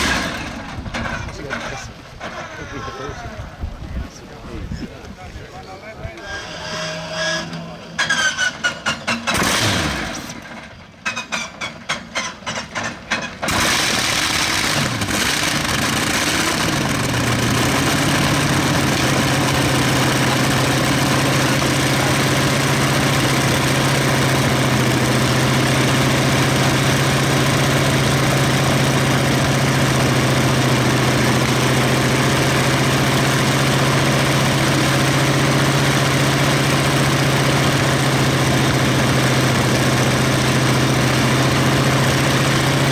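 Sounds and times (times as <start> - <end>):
aircraft radial engine running: 11.8 - 42.9.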